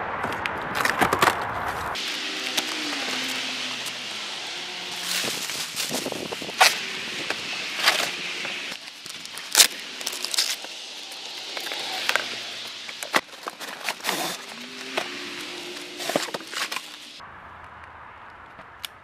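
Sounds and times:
cardboard rubbing and scraping: 4.6 - 10.7, 11.6 - 17.2
cardboard flap crackling: 4.9 - 10.7, 12.9 - 17.2
paper crinkling: 7.7 - 10.7, 12.9 - 15.0, 15.7 - 17.0.

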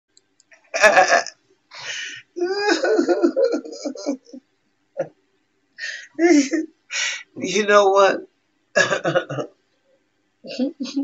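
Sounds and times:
person vocalizing without words: 0.8 - 4.4.

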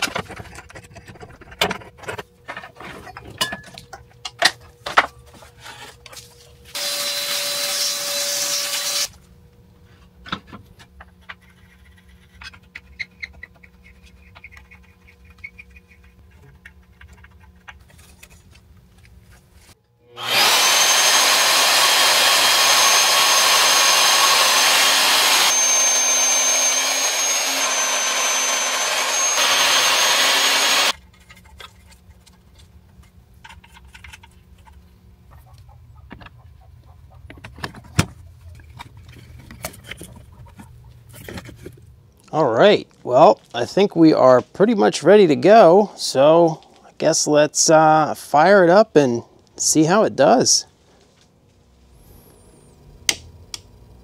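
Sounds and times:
tool and metal clatter: 0.0 - 6.5
electric power tool whining: 6.7 - 9.2, 20.0 - 31.0.

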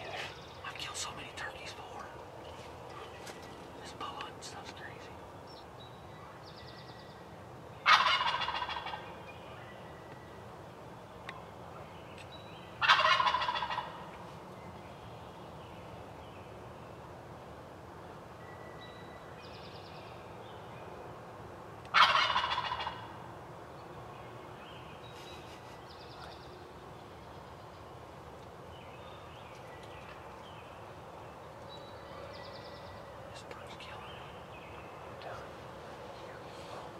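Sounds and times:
faint bird calls: 0.0 - 10.4, 11.2 - 16.5, 21.9 - 23.3, 24.3 - 36.9
turkey gobbling: 7.8 - 9.0, 12.8 - 14.0, 21.9 - 23.2.

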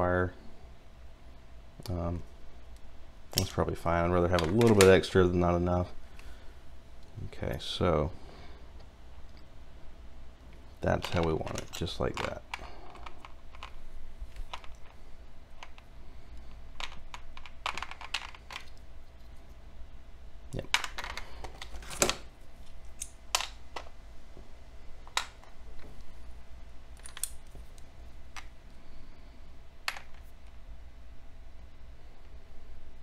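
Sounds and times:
plastic parts clicking and tapping: 16.8 - 18.8.

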